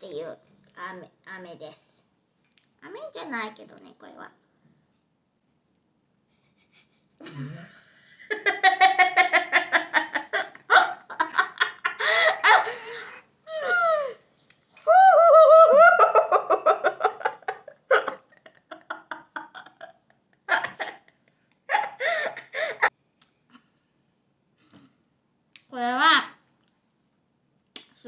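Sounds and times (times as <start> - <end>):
laughter: 6.5 - 12.7, 15.6 - 22.9.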